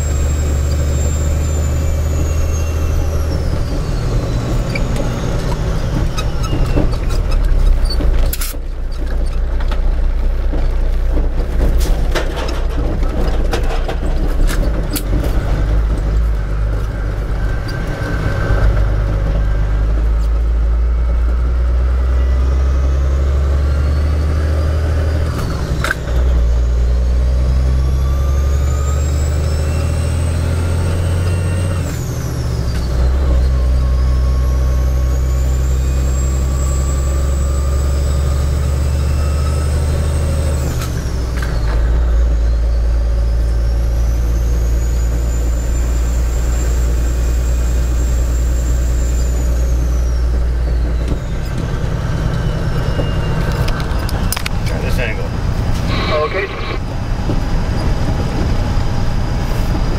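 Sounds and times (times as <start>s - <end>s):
truck diesel engine drone: 0.0s - 59.9s
gearbox clunk: 10.5s - 16.9s.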